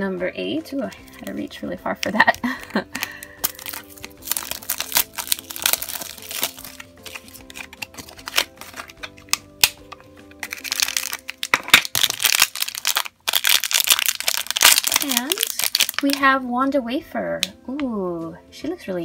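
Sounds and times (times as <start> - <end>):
soft background music: 0.0 - 19.0
plastic wrap crinkling: 0.9 - 16.3.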